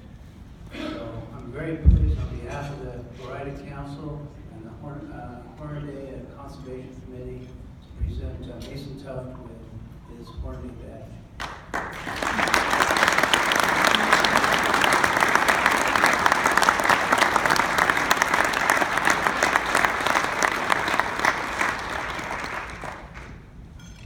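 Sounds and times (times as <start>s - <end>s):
audience applauding: 11.4s - 23.5s.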